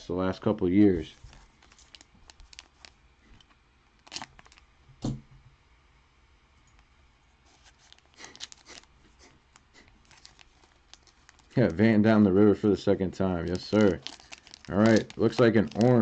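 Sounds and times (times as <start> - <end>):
cards rustling: 0.8 - 4.6, 7.4 - 12.0, 13.4 - 16.0.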